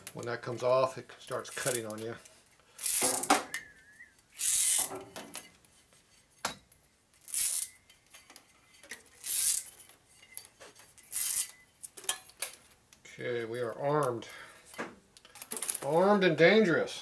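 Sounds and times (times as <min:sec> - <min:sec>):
metal blade rattling and scraping: 0:07.2 - 0:12.5.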